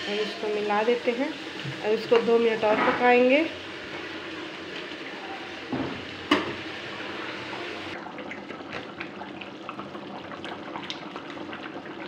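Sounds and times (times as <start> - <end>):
curry simmering and bubbling: 7.8 - 12.0
bubbles popping: 8.0 - 12.0.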